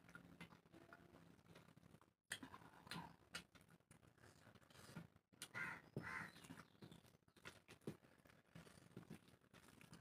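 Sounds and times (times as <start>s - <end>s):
wet chewing sounds: 6.3s - 10.0s.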